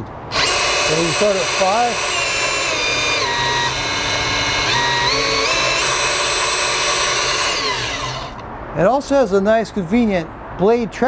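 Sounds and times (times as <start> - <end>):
band saw motor whine: 0.3 - 8.4.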